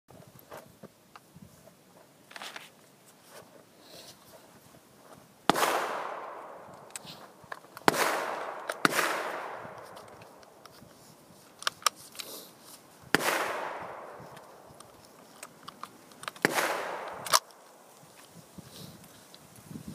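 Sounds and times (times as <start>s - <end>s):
gunshots with long echo: 5.5s - 7.1s, 7.8s - 10.4s, 13.1s - 14.7s, 16.4s - 17.9s
small sharp clicks: 13.7s - 18.4s.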